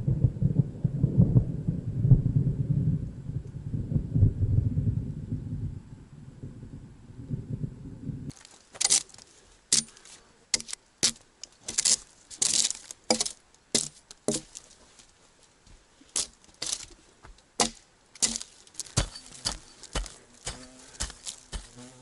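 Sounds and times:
axe chopping log: 10.6 - 14.6, 17.6 - 21.7
bark tearing scrapes: 17.6 - 22.0.

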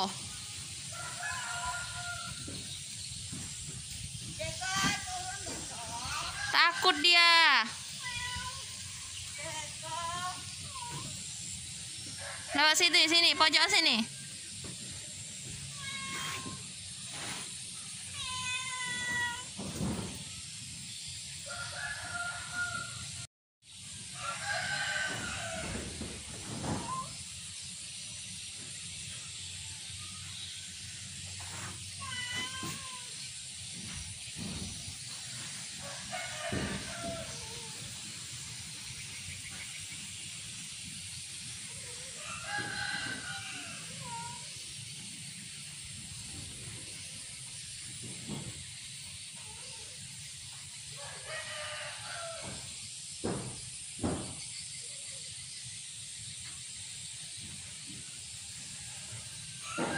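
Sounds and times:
cat meowing: 18.2 - 19.5, 32.0 - 33.2.

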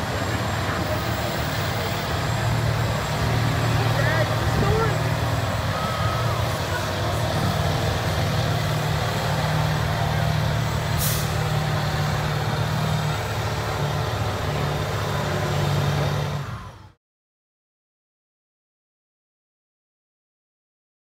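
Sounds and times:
truck engine under load: 0.0 - 17.0
short hiss: 11.0 - 11.4.

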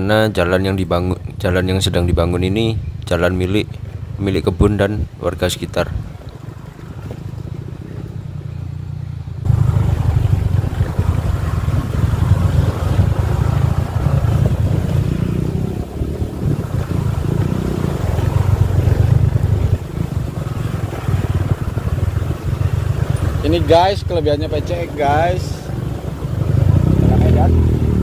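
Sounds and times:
scooter engine running: 6.0 - 28.0.

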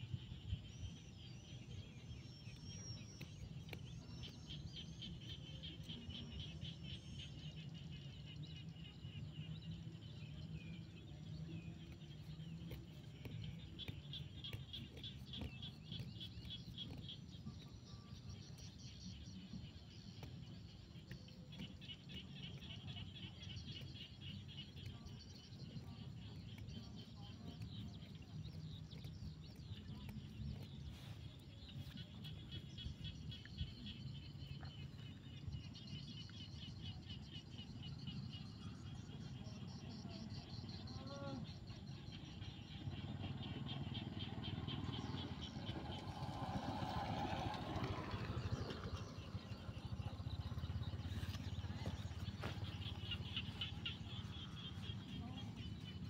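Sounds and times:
low steady rumble: 0.0 - 56.0
frogs calling in chorus: 31.6 - 56.0.

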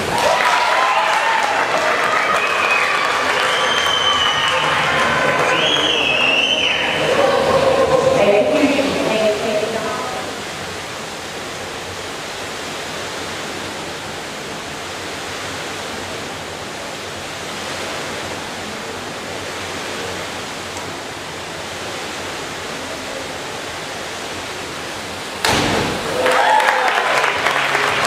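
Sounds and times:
rushing hiss of indoor pool hall: 0.0 - 28.0.

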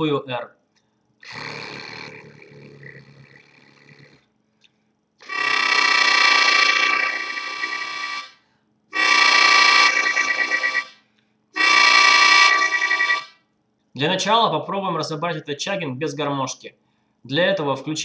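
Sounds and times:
harmonica chords: 5.2 - 8.3, 9.0 - 10.9, 11.6 - 13.2.

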